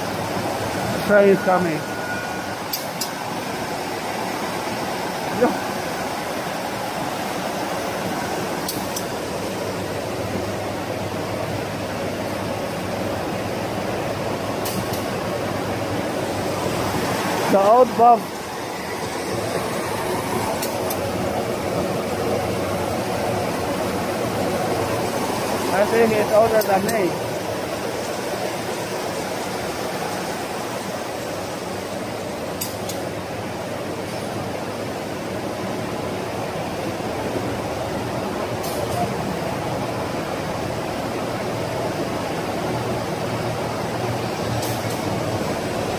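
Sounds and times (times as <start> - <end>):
machine whirring: 0.0 - 33.1.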